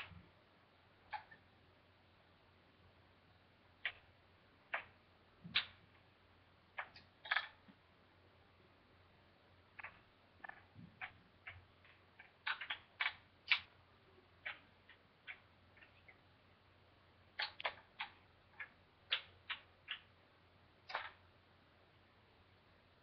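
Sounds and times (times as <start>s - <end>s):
wooden balls clacking on cups: 4.7s - 5.9s, 9.7s - 13.7s, 17.3s - 20.1s, 20.8s - 21.2s.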